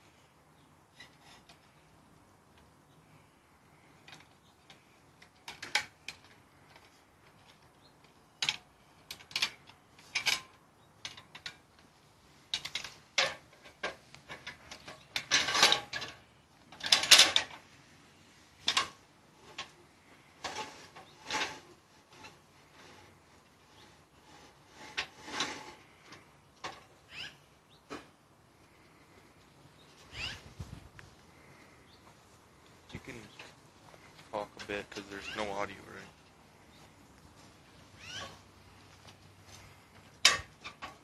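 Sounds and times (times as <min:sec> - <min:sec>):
metal ladder clicks and rattles: 0:04.0 - 0:11.9, 0:12.5 - 0:17.6, 0:18.6 - 0:19.8, 0:40.0 - 0:41.0.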